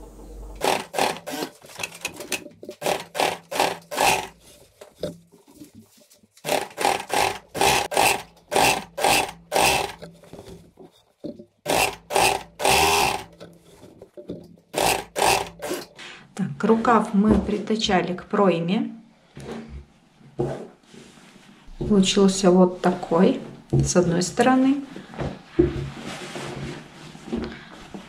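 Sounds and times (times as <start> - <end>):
sewing machine stitching: 0.6 - 4.4, 6.4 - 10.1, 11.6 - 13.4, 14.7 - 16.0.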